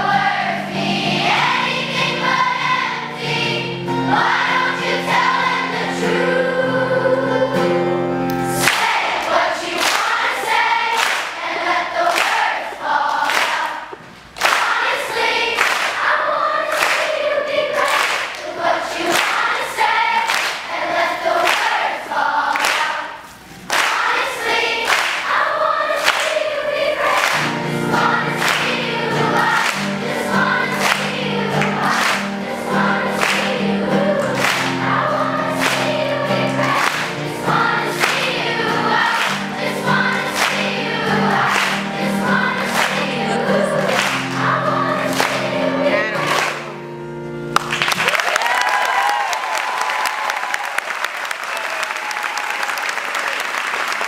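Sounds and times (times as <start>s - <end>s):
children's choir singing: 0.0s - 47.0s
hands clapping: 8.3s - 10.3s, 11.0s - 11.4s, 12.1s - 12.5s, 13.1s - 16.0s, 16.7s - 17.2s, 17.8s - 18.5s, 19.1s - 19.6s, 20.2s - 20.8s, 21.4s - 21.8s, 22.5s - 25.4s, 26.0s - 27.6s, 28.3s - 30.1s, 30.7s - 34.9s, 35.5s - 37.2s, 37.9s - 38.4s, 39.0s - 40.8s, 41.4s - 45.6s, 46.2s - 46.8s, 47.5s - 54.0s.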